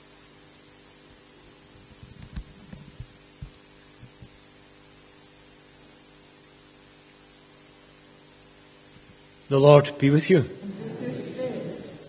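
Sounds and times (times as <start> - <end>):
electrical hum and hiss: 0.0 - 12.0.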